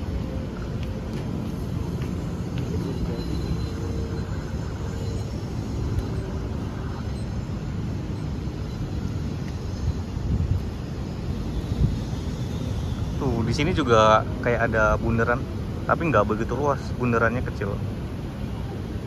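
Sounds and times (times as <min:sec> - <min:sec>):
distant city traffic rumble: 0:00.0 - 0:19.0.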